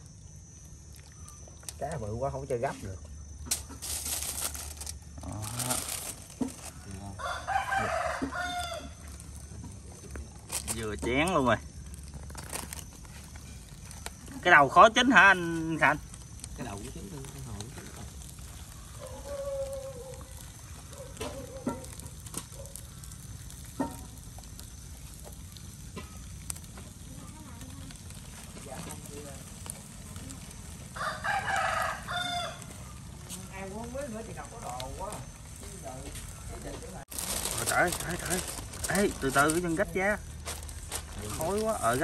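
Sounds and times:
fish sizzling on a grill: 0:00.0 - 0:42.0
rooster crowing: 0:06.6 - 0:09.2, 0:18.6 - 0:21.9, 0:30.7 - 0:33.3.

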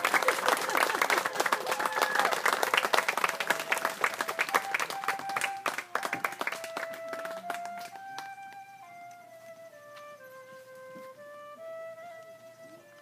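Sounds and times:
crowd applauding: 0:00.0 - 0:08.3
slow melody of held notes: 0:04.6 - 0:13.0.

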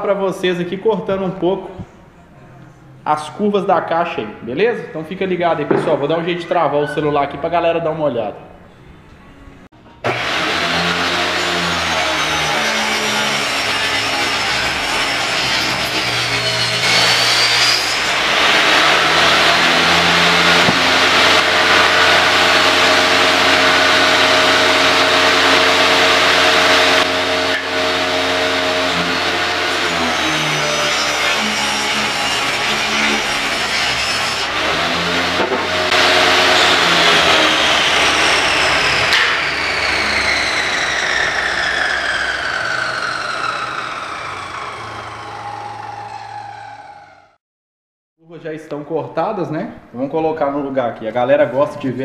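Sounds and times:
table saw cutting wood: 0:05.3 - 0:06.6, 0:09.9 - 0:47.4
saw blade winding down whine: 0:10.0 - 0:47.4.

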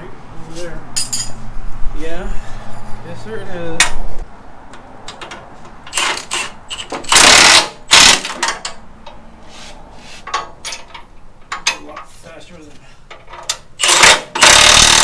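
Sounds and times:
cordless impact driver: 0:05.9 - 0:08.4, 0:13.8 - 0:15.0
tools clicking on metal: 0:13.1 - 0:15.0.

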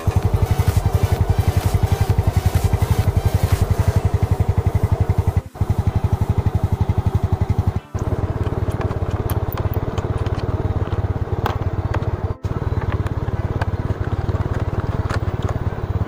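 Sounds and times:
scooter engine idling: 0:00.0 - 0:16.0
hand tool clicks: 0:08.4 - 0:10.5.

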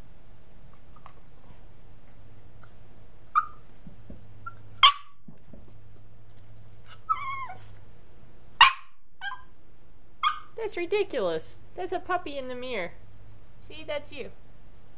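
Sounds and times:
puppy barking: 0:02.6 - 0:03.7, 0:04.4 - 0:05.2, 0:08.6 - 0:09.5, 0:10.2 - 0:10.6
puppy yelping: 0:02.6 - 0:03.7, 0:04.4 - 0:05.2, 0:06.8 - 0:07.8, 0:08.6 - 0:09.6, 0:10.2 - 0:10.6.

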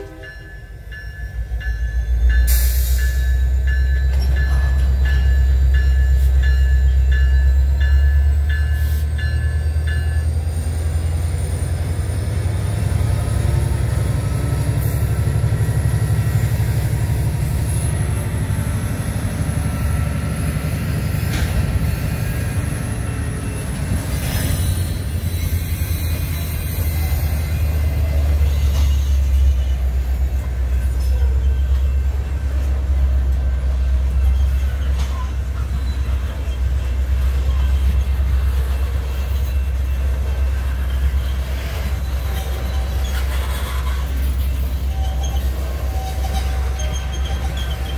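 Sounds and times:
rail cars rumbling: 0:00.0 - 0:47.9
high wheel squeal: 0:12.8 - 0:47.9.

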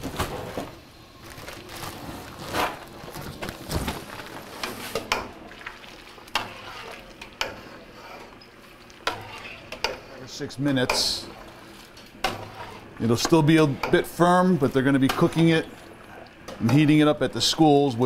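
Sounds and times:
liquid sloshing: 0:01.2 - 0:14.0.

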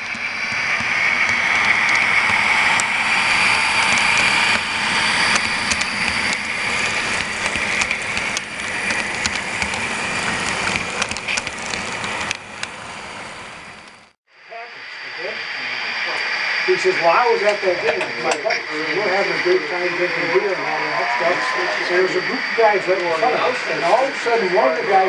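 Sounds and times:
model train motors whirring: 0:00.0 - 0:14.1
wheels clicking on track: 0:00.0 - 0:14.1.

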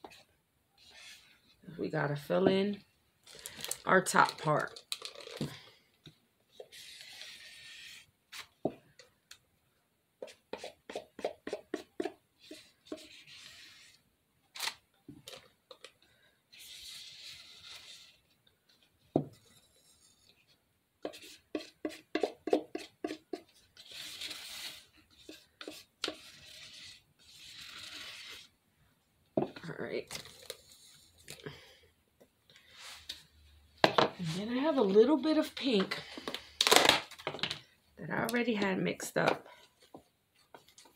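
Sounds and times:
soft scraping rub: 0:19.4 - 0:21.4, 0:32.6 - 0:33.4.

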